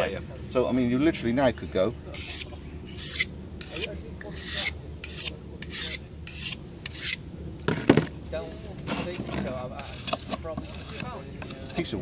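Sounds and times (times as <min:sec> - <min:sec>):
knife rasping on sharpening stone: 0:02.1 - 0:07.2, 0:09.7 - 0:12.0.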